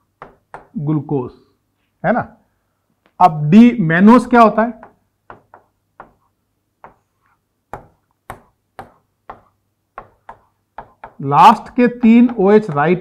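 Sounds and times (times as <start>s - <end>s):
stylus tapping on a screen: 0.2s - 0.8s, 4.8s - 7.1s, 7.7s - 13.0s.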